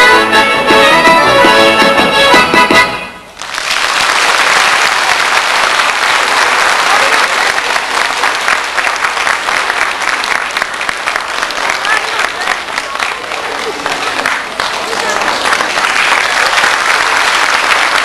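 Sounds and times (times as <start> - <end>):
accordion folk dance music: 0.0 - 3.4
audience applause: 3.4 - 18.0.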